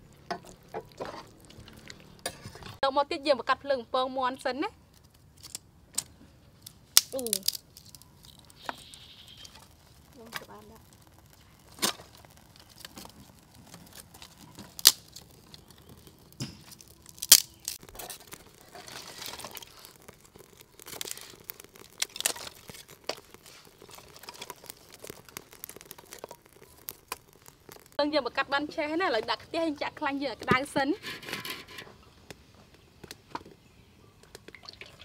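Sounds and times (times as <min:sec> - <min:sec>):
dry leaves crinkling: 0:06.6 - 0:28.0
sticks snapping: 0:07.0 - 0:08.6, 0:13.9 - 0:28.0.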